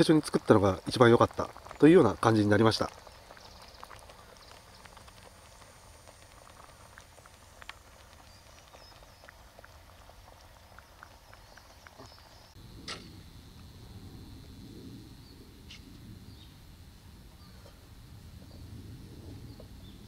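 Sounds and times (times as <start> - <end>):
small birds chirping: 0.6 - 5.8, 7.8 - 12.6, 15.2 - 16.6.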